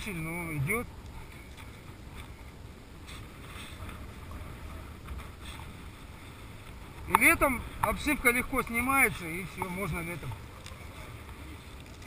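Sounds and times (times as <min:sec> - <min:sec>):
soft ticks: 0:09.5 - 0:12.0.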